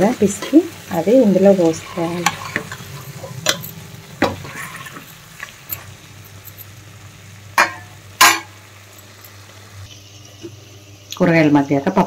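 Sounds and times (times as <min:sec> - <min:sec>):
vegetables sizzling in a pan: 0:00.0 - 0:12.0
utensil clanking against pot: 0:01.8 - 0:05.9.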